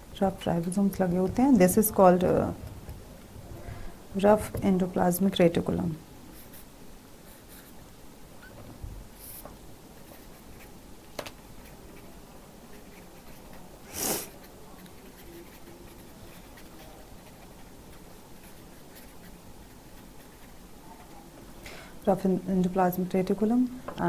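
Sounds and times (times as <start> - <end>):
low room hum: 0.0 - 24.0
marker pen scratching on paper: 6.4 - 7.8, 9.2 - 9.4, 10.0 - 10.8, 11.6 - 20.6
short hiss: 13.9 - 14.3.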